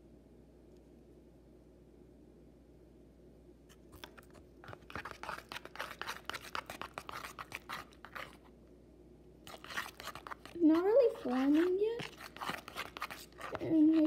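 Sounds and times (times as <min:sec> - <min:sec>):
utensil stirring slime in bowl: 0:03.7 - 0:08.6, 0:09.4 - 0:14.0.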